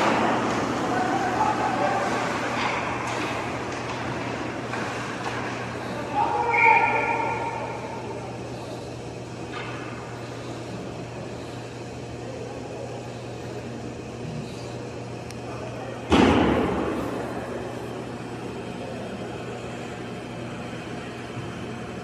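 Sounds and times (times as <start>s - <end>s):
ice rink hum: 0.0s - 22.0s
loud bang against boards: 16.1s - 16.9s.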